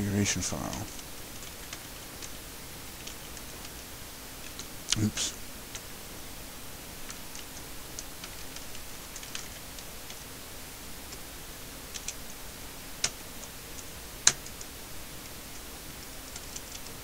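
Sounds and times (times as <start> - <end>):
computer keyboard keys clicking: 7.0 - 10.2, 11.9 - 12.3, 13.0 - 14.8, 15.5 - 17.0.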